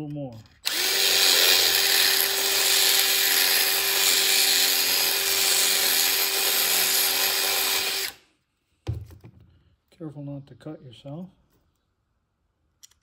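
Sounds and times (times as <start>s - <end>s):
cordless drill boring metal: 0.6s - 8.2s.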